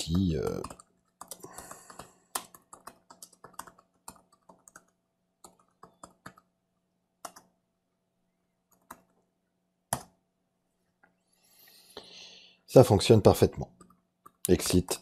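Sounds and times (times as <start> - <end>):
keyboard typing: 0.1 - 6.6, 7.2 - 7.6, 8.6 - 9.3, 9.9 - 10.2, 13.7 - 15.0.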